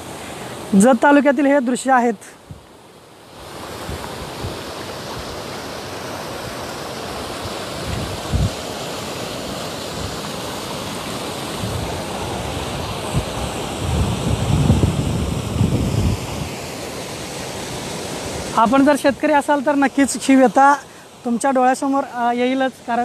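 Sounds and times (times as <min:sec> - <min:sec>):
water rushing: 0:00.0 - 0:23.0
wind buffeting microphone: 0:07.4 - 0:08.7, 0:11.5 - 0:16.6.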